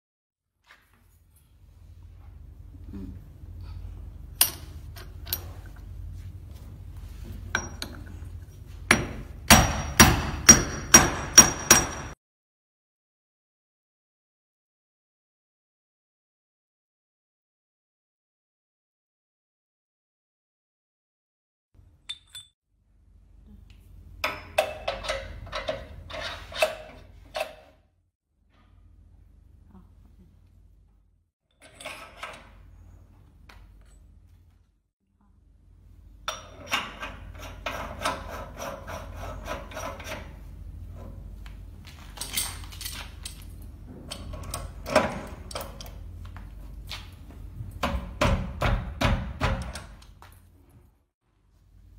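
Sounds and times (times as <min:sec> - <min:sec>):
faint low hum: 0:01.0 - 0:08.8, 0:28.4 - 0:36.4
hammer striking steel: 0:08.9 - 0:12.2
metal parts clinking: 0:22.0 - 0:22.5, 0:42.0 - 0:44.7
light metal clinks: 0:22.1 - 0:22.6.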